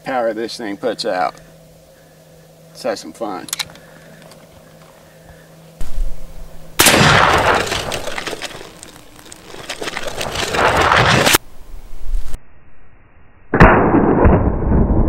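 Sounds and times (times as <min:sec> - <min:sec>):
loud rifle blast: 0:06.8 - 0:11.4, 0:13.6 - 0:15.0.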